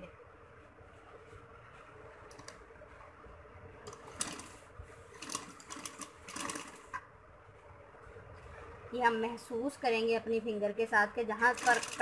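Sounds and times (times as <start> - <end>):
sewing machine clicking: 3.9 - 4.6, 5.2 - 7.0, 11.5 - 12.0.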